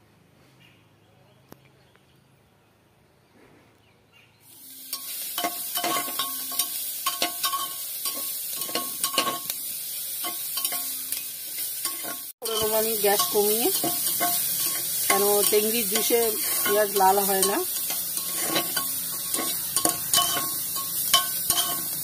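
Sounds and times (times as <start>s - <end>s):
onions sizzling in butter: 4.5s - 22.0s
spoon scraping metal pot: 11.8s - 22.0s.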